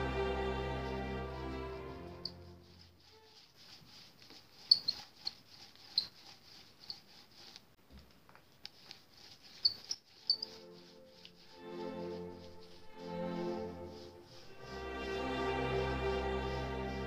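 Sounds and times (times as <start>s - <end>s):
paint roller squeaking: 2.1s - 7.7s, 8.6s - 17.0s.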